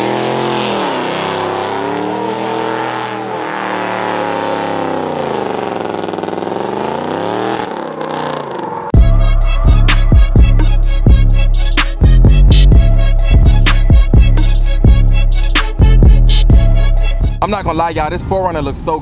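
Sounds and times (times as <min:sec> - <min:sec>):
pickup engine revving: 0:00.0 - 0:08.9
hip-hop music with heavy bass: 0:08.9 - 0:18.6.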